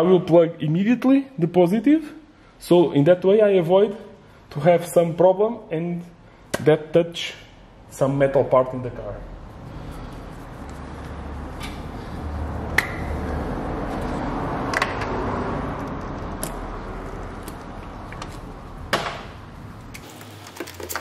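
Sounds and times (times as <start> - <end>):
rustling handling noise: 9.7 - 11.8.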